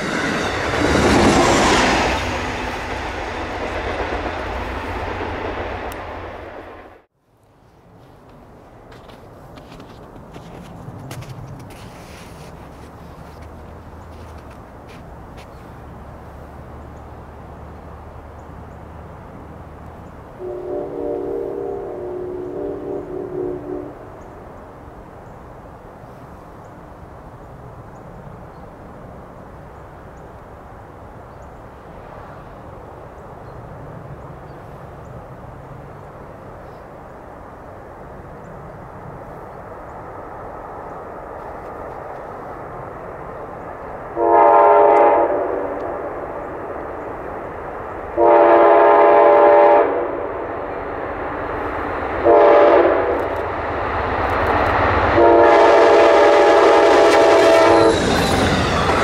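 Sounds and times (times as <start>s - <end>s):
diesel locomotive rumble: 0.0s - 7.1s, 34.1s - 59.0s
train horn blasts: 20.4s - 24.2s, 44.1s - 45.9s, 48.1s - 50.3s, 52.2s - 53.3s, 55.2s - 59.0s.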